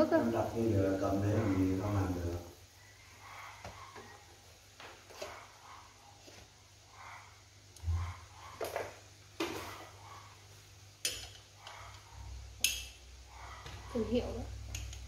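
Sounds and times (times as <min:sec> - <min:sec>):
utensils clanking on metal pot: 0:11.0 - 0:12.0, 0:12.6 - 0:13.0, 0:14.6 - 0:15.0.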